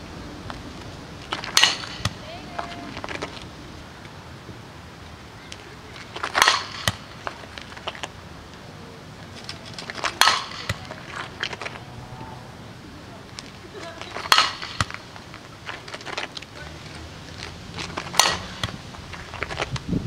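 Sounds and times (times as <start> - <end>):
bat cracking against ball: 1.2 - 3.3, 5.5 - 8.1, 9.6 - 11.8, 14.0 - 16.4, 17.8 - 19.7.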